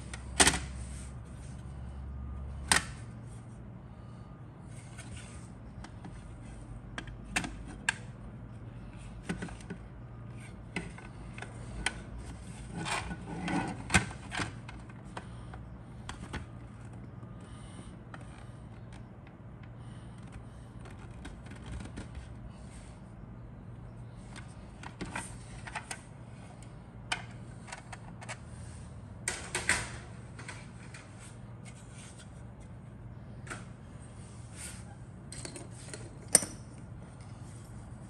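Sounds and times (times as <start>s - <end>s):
plastic rubbing and scraping: 12.3s - 14.3s.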